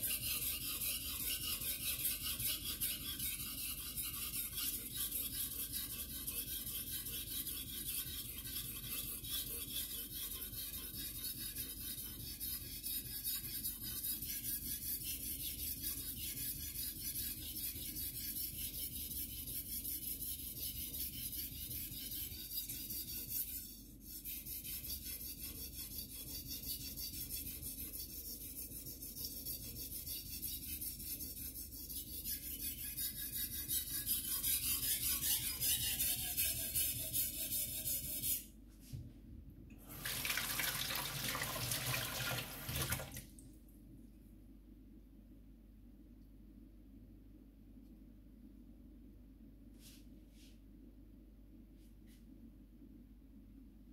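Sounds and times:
knife scraping on whetstone: 0.0 - 38.5.

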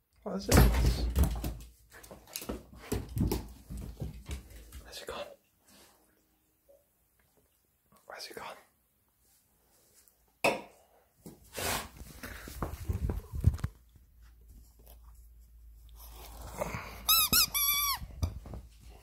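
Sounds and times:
squeaky dog toy squeaking: 17.1 - 18.2.

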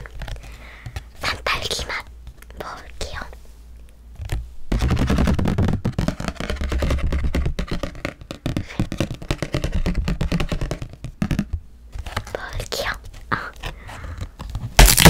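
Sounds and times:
fingernails tapping on stiff paper: 4.2 - 12.3.

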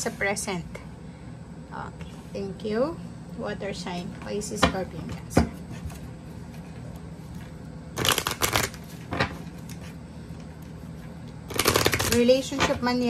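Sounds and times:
cards shuffling: 8.0 - 9.9, 11.5 - 12.3.

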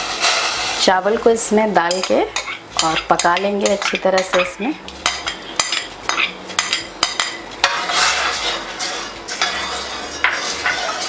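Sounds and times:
metal clinking against steel pot: 1.8 - 11.0
ladle swishing and scraping: 7.6 - 11.0.

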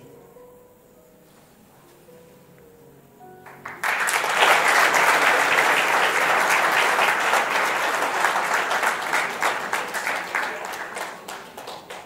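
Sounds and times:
faint plucked-string music: 0.0 - 3.6
audience applause: 3.4 - 12.0.

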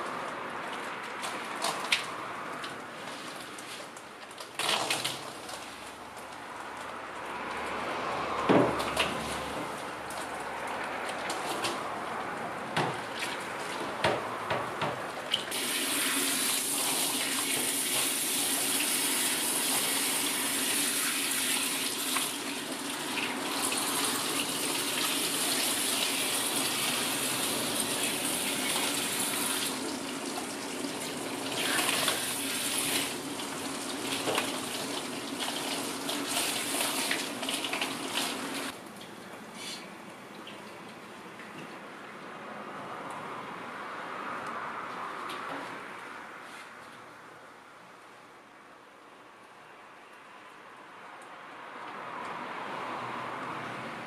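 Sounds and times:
water splashing in a dipper: 4.4 - 5.9, 15.1 - 39.2.

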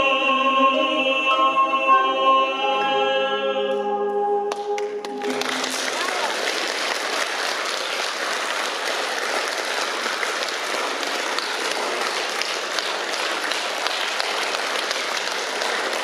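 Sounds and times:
audience applauding: 4.5 - 16.0.

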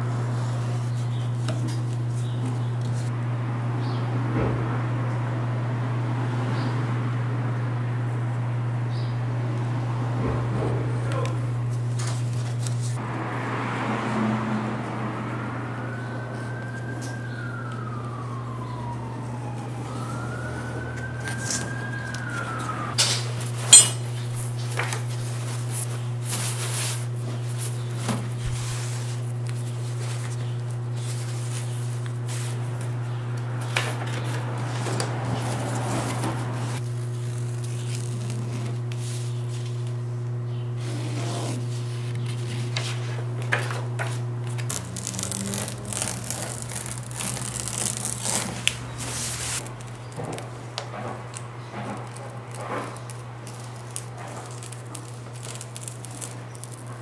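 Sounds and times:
siren: 13.0 - 23.1, 44.6 - 51.2
material rustling: 44.4 - 50.5, 52.0 - 57.0
cutting and handling material: 44.4 - 57.0.

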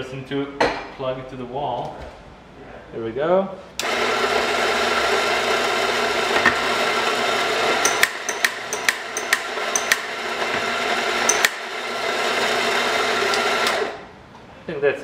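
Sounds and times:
coffee grinder running: 3.8 - 14.1
sharp metallic clicks and taps: 7.8 - 10.0.

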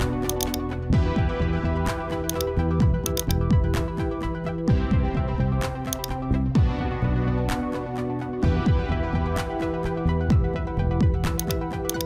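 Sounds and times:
electronic music with beat: 3.1 - 3.5, 11.4 - 12.0.

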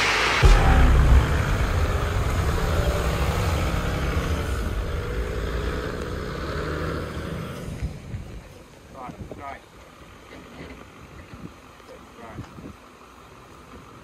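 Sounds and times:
vehicle driving past: 0.0 - 8.4.

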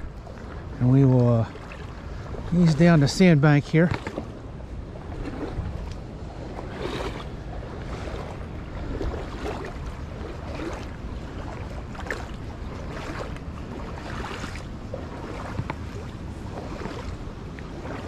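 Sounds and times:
water sloshing around legs: 0.0 - 18.0
wind rumble on microphone: 0.0 - 18.0.

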